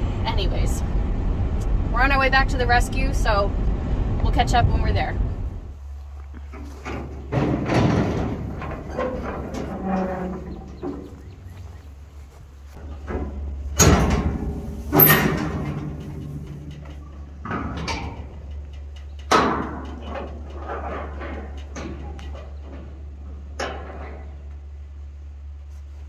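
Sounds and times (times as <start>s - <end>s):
low hum: 0.0s - 26.0s
metal clanks and knocks: 6.1s - 24.7s
metal gate banging: 6.4s - 11.8s, 12.8s - 24.5s.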